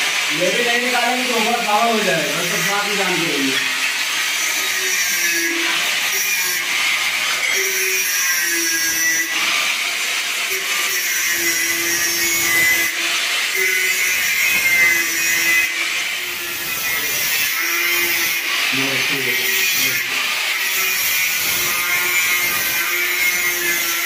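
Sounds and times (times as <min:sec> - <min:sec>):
power tool whining: 0:00.0 - 0:24.0.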